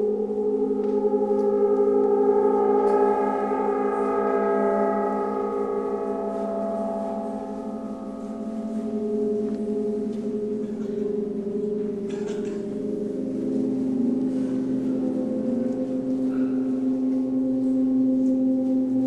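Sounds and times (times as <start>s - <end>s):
bronze gongs ringing: 0.0s - 19.0s.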